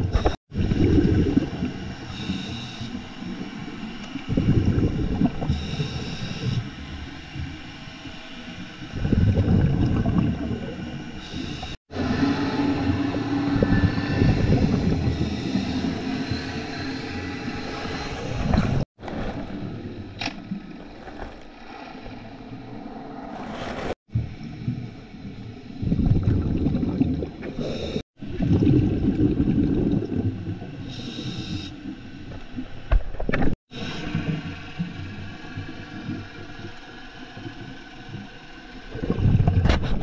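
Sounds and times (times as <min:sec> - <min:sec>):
underwater exhaust bubbles: 0:00.0 - 0:21.0, 0:24.1 - 0:40.0
scuba regulator breathing: 0:27.6 - 0:28.0, 0:30.8 - 0:31.7.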